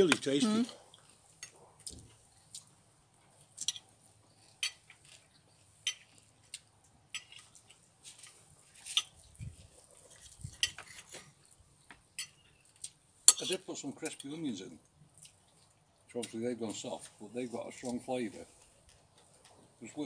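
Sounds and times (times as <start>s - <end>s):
dishes clicking and tapping: 11.9s - 12.4s.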